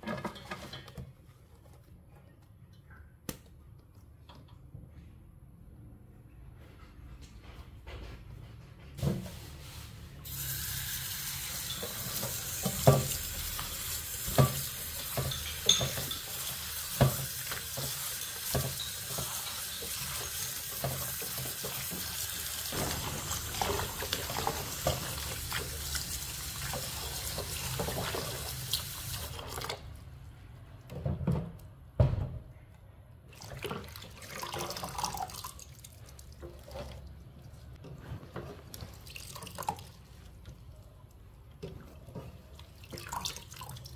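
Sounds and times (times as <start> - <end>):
tap water running into steel bowl: 10.2 - 29.8.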